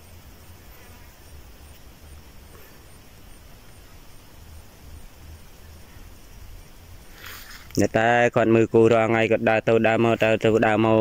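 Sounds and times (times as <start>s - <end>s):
insect chirping: 0.0s - 11.0s.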